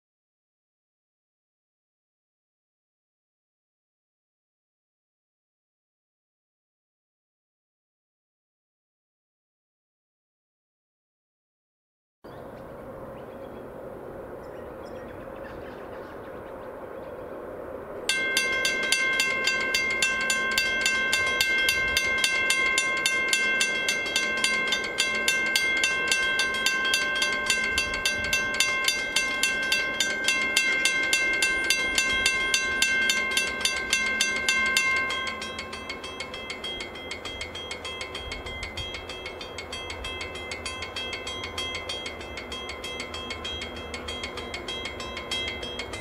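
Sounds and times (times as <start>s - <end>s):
loud level crossing bell: 18.1s - 46.0s
weak level crossing bell: 18.1s - 46.0s.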